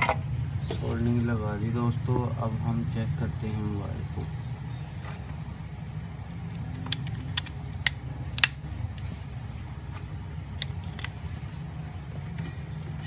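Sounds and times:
steady low hum: 0.0 - 13.0
plastic phone parts clicking: 6.6 - 9.0.

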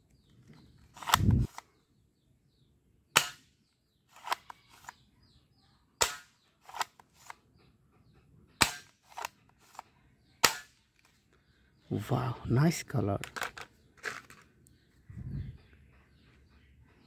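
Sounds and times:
toy gun mechanism clicks: 4.1 - 5.0, 6.1 - 7.4, 8.7 - 9.9.

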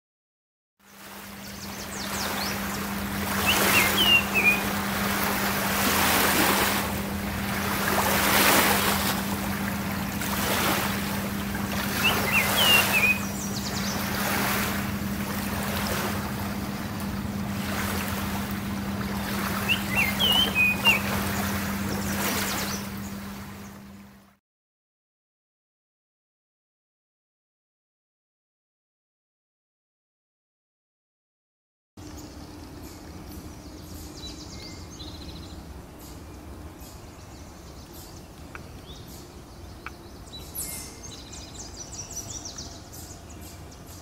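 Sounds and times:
steady low hum: 0.9 - 24.4, 32.0 - 44.0
bird singing whistled notes: 3.4 - 4.8, 11.9 - 14.1, 19.6 - 21.4, 32.2 - 35.6, 36.8 - 44.0.

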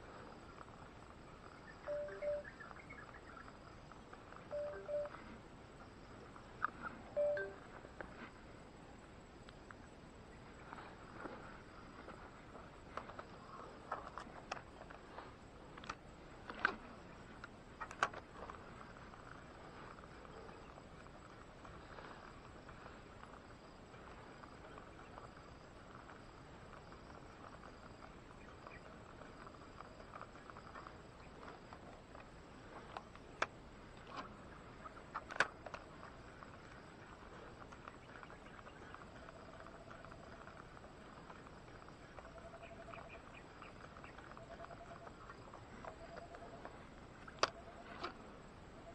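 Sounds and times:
faint steady hum: 0.0 - 48.9
faint chirping: 0.1 - 7.8, 35.9 - 47.9.

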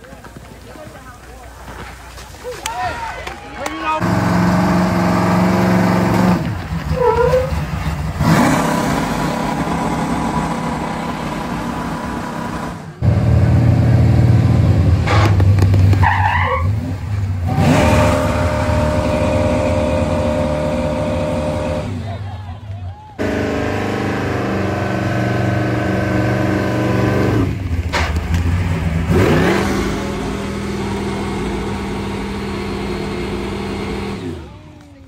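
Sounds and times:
vehicle engines revving: 3.9 - 35.0.

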